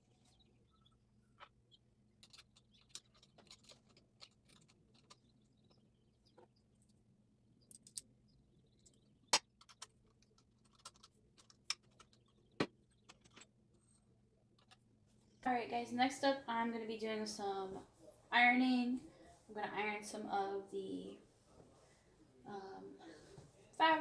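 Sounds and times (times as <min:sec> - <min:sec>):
faint low hum: 0:00.0 - 0:24.0
clicks and taps on metal parts: 0:07.6 - 0:08.1.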